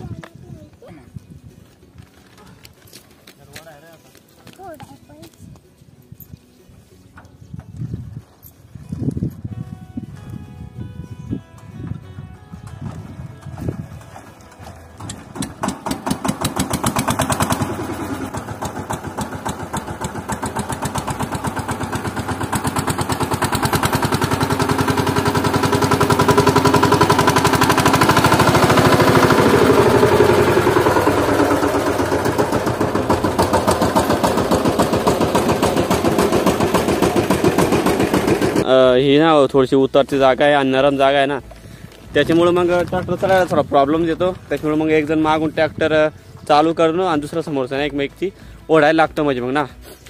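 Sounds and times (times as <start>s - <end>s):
diesel engine chugging: 12.6s - 38.7s.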